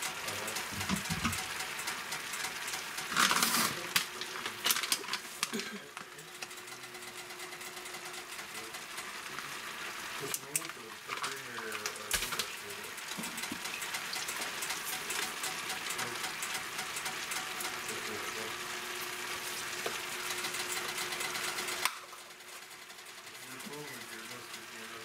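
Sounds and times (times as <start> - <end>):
food sizzling in a pan: 7.2 - 22.7.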